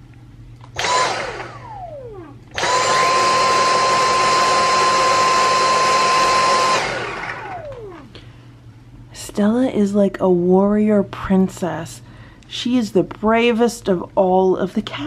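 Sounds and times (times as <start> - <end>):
stick vacuum motor whining: 0.6 - 8.3.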